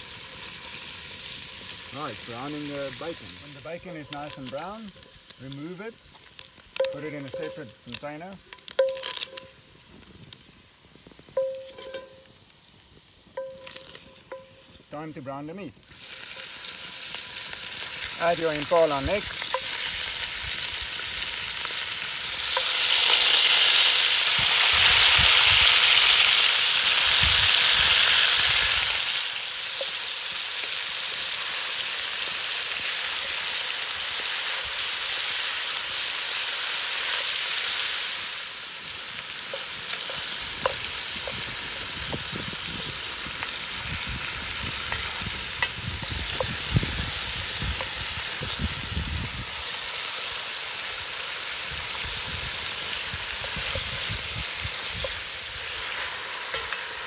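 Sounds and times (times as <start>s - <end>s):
meat sizzling in hot fat: 0.0s - 57.0s.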